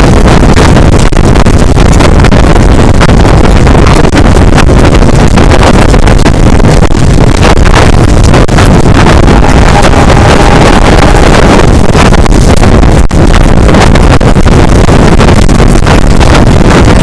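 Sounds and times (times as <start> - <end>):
wind buffeting microphone: 0.0 - 17.0
train rumbling on rails: 2.0 - 14.3.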